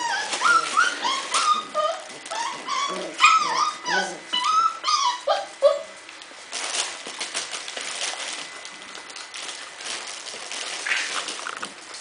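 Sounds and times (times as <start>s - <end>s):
puppy whimpering: 0.0s - 6.0s
paws scratching on floor: 0.0s - 12.0s.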